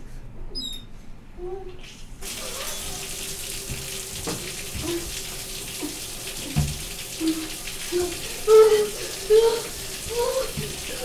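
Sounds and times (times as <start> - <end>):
water running from a tap: 2.2 - 11.0.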